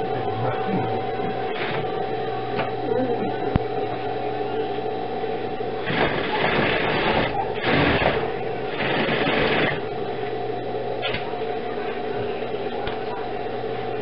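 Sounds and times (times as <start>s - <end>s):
steady electrical hum: 0.0s - 14.0s
sewing machine stitching: 5.8s - 9.8s.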